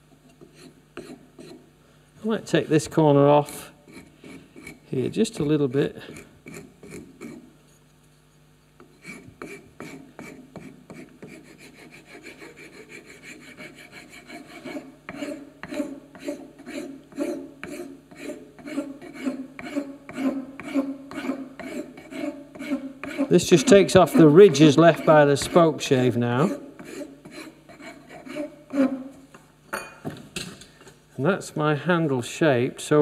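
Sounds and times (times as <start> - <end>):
rasp filing wood: 0.4 - 1.6, 3.9 - 7.5, 8.8 - 29.0.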